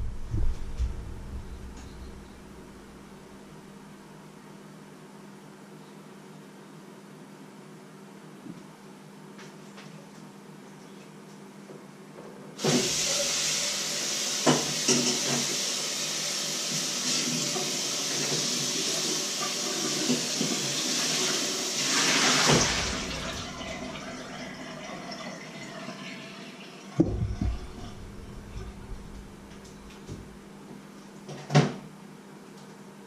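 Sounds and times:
tap running water into bowl: 0:14.4 - 0:15.6.

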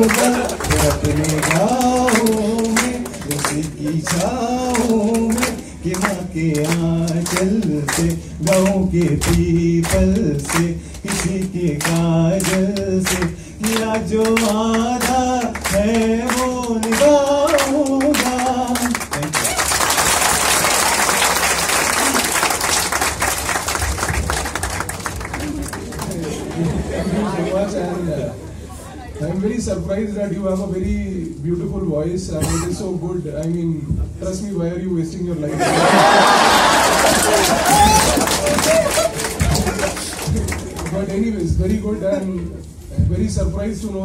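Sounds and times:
man singing unaccompanied: 0:00.0 - 0:19.3
people clapping along to a beat: 0:00.0 - 0:26.7, 0:35.7 - 0:41.8
applause: 0:00.0 - 0:26.8, 0:35.7 - 0:41.3.

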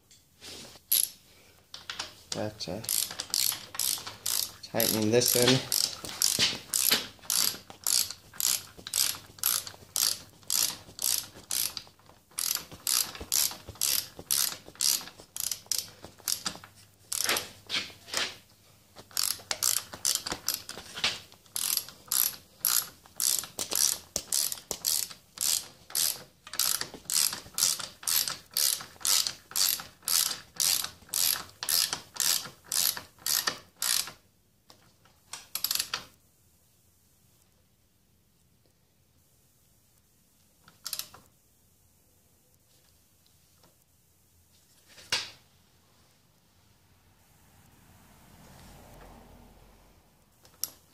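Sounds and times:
ratchet wrench clicking: 0:00.9 - 0:01.2, 0:01.8 - 0:17.5, 0:19.0 - 0:20.8, 0:21.5 - 0:34.2, 0:35.4 - 0:36.0, 0:40.7 - 0:41.2, 0:50.4 - 0:50.8.

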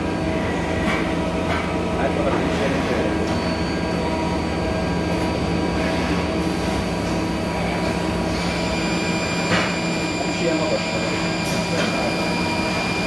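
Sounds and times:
lathe running with whine: 0:01.9 - 0:13.0.

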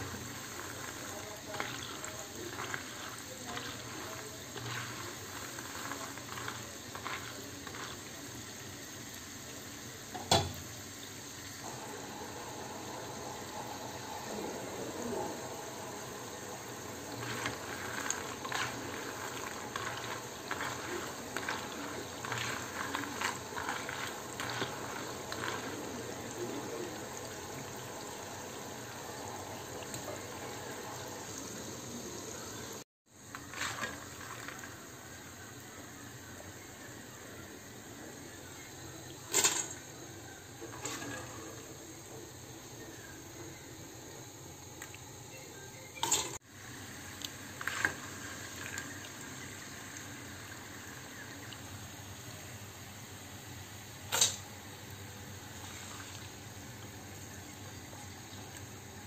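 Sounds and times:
watery hiss of liquid: 0:00.0 - 0:09.9.

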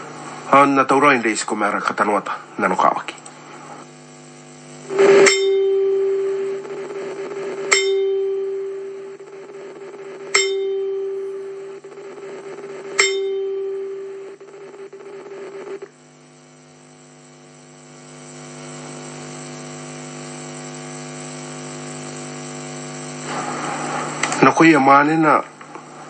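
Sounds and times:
steady multi-tone hum: 0:00.0 - 0:26.0
bell-like chime ringing: 0:05.2 - 0:06.5, 0:07.7 - 0:09.0, 0:10.4 - 0:11.8, 0:13.0 - 0:14.2.

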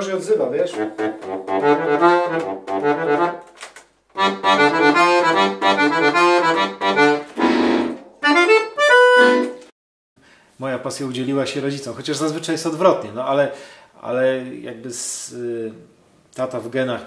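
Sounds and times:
accordion playing chords: 0:00.7 - 0:09.7.

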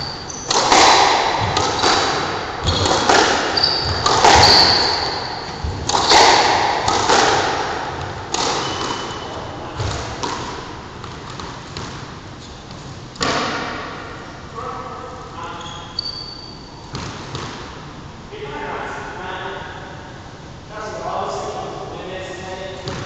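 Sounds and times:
sneakers squeaking on wooden floor: 0:00.0 - 0:06.5, 0:07.9 - 0:13.0, 0:15.5 - 0:17.5
squash ball hits echoing: 0:00.0 - 0:12.3, 0:13.1 - 0:14.1, 0:16.9 - 0:17.8.

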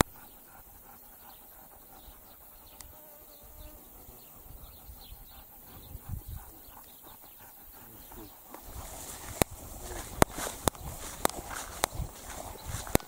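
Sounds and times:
insect buzzing: 0:00.0 - 0:13.0.

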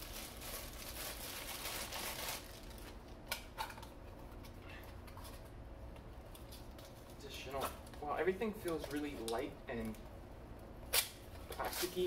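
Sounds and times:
packaging rustling and crinkling: 0:00.0 - 0:03.2, 0:11.4 - 0:12.0.

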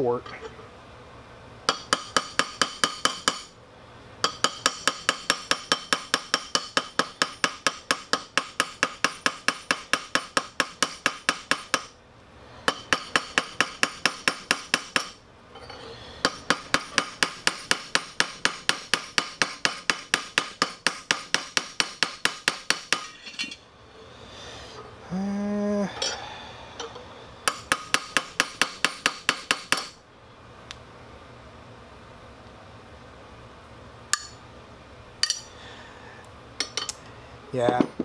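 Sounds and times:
hammer striking metal rivet: 0:01.7 - 0:03.5, 0:04.2 - 0:12.0, 0:12.7 - 0:15.2, 0:16.2 - 0:23.6, 0:27.5 - 0:30.0, 0:34.1 - 0:34.4, 0:35.2 - 0:35.5.

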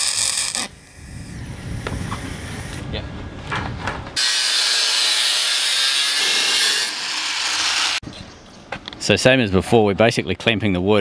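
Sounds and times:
angle grinder grinding steel: 0:00.0 - 0:00.9, 0:04.2 - 0:08.0.

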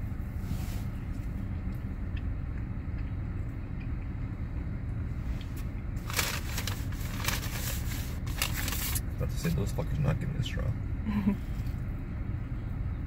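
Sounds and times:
low car cabin rumble: 0:00.0 - 0:13.0
paper bag rustling: 0:06.0 - 0:09.0.

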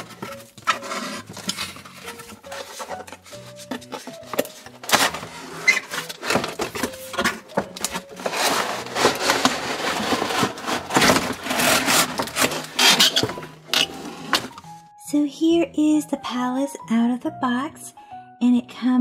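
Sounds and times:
plastic scraping against cardboard: 0:00.0 - 0:14.8.

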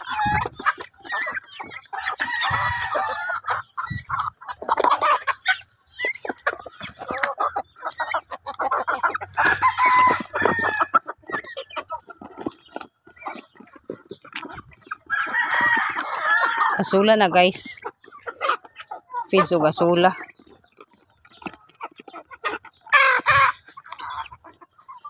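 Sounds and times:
chickens clucking: 0:00.0 - 0:25.0
rooster crowing: 0:09.4 - 0:10.9, 0:15.1 - 0:16.8.

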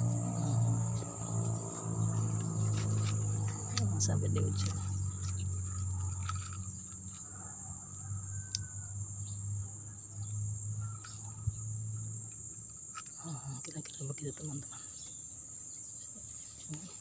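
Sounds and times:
low rumble: 0:00.0 - 0:07.0
insects trilling: 0:00.0 - 0:17.0.

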